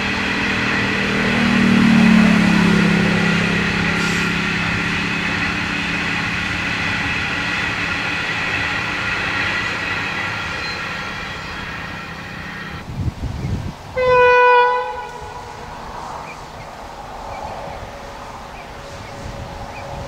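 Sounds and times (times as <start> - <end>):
train wheels rumbling: 0.0 - 20.0
high ringing tones: 3.1 - 12.8.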